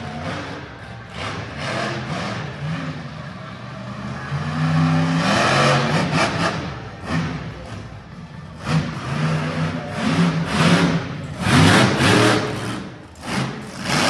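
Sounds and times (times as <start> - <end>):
truck engine revving hard: 0.0 - 14.0.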